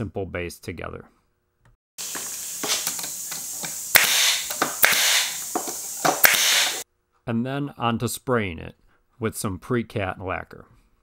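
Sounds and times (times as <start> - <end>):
air hiss: 2.0 - 6.8
nail gun shots: 2.6 - 6.8.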